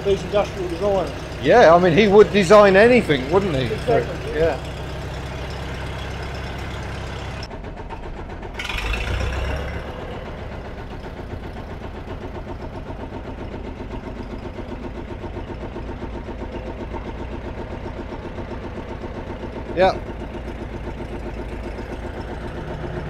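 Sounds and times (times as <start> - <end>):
tractor engine idling: 0.0 - 23.0.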